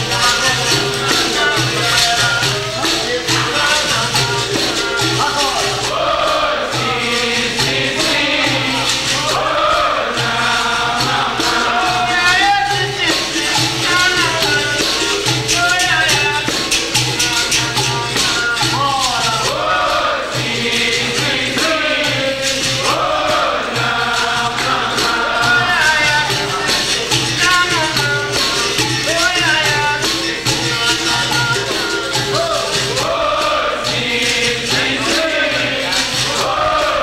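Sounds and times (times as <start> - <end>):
person singing: 0.0 - 16.8
shaker rattle: 0.0 - 37.0
tambourine: 0.0 - 37.0.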